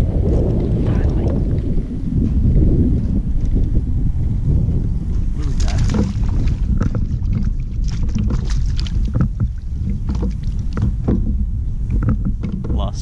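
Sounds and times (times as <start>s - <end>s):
wind buffeting microphone: 0.0s - 13.0s
fishing gear clicks and knocks: 5.7s - 13.0s.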